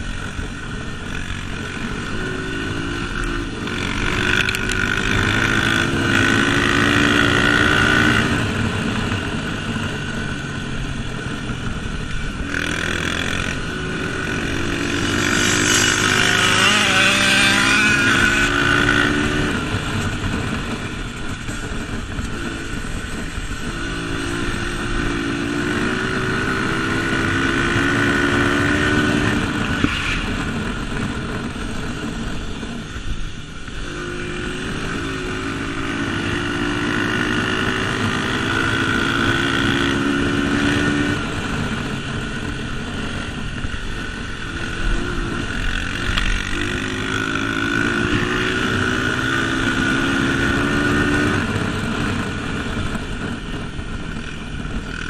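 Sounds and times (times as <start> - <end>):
dirt bike engine accelerating: 0.0 - 32.8.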